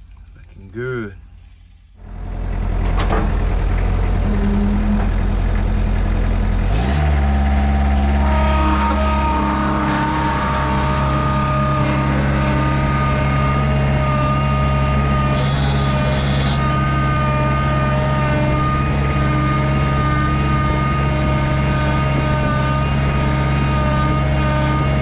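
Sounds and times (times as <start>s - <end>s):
brief hiss: 1.4s - 2.0s
large engine revving: 2.0s - 25.0s.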